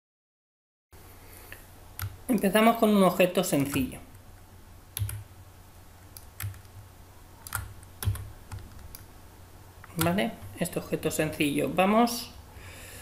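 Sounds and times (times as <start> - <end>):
keyboard keys clicking: 3.6 - 3.9, 5.0 - 5.3, 6.1 - 6.8, 7.4 - 9.1.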